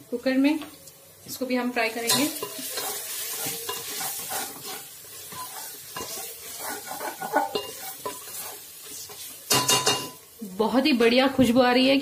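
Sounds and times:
oil sizzling: 0.8 - 11.3
spatula scraping pot: 2.1 - 10.0
spatula tapping pot: 2.1 - 10.2.

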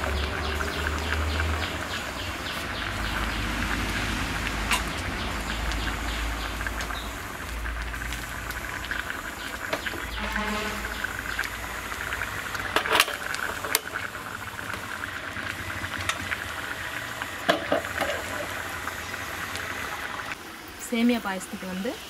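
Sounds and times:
steel pot clattering on grate: 4.6 - 5.0, 12.7 - 14.1.

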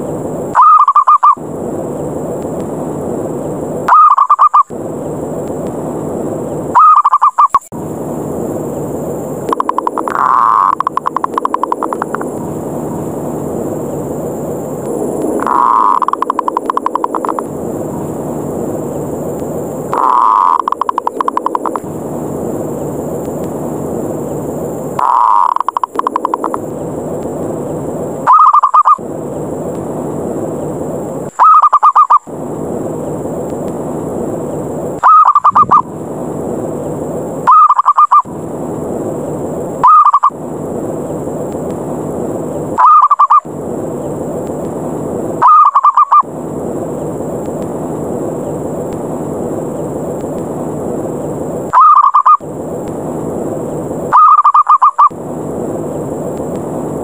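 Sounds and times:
dove rolling call: 0.6 - 1.4, 3.9 - 4.7, 6.7 - 7.6, 15.4 - 17.4, 19.9 - 21.8, 25.0 - 26.6, 28.2 - 29.0, 31.3 - 32.3, 35.0 - 35.9, 37.4 - 38.3, 39.8 - 40.4, 42.7 - 43.5, 45.4 - 46.3, 51.7 - 52.4, 54.1 - 55.1
steady low rushing noise: 7.7 - 28.3, 29.0 - 31.3, 32.2 - 37.5.

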